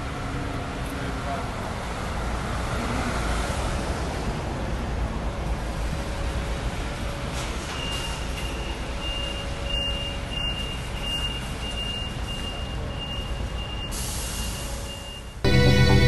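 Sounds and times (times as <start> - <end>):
bus driving past: 0.0 - 16.0
street traffic: 0.0 - 16.0
high electronic beeps: 15.5 - 16.0.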